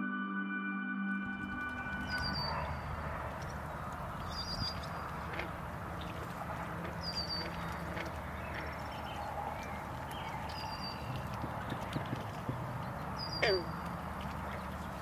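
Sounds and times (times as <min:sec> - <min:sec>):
sustained music tones: 0:00.0 - 0:09.0
high bird chirps: 0:01.3 - 0:05.3, 0:06.0 - 0:12.3, 0:13.0 - 0:15.0.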